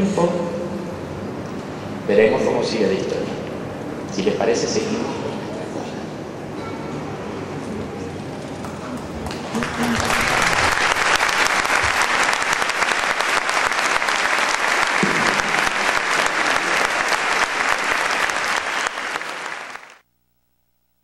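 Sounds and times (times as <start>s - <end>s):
audience applauding: 8.6s - 20.0s.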